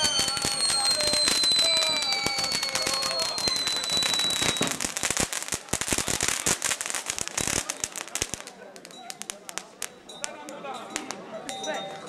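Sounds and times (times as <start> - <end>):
faint high descending whistle: 0.0 - 4.7
firecrackers crackling and popping: 0.0 - 12.0
hissing spray of sparks: 0.0 - 12.0.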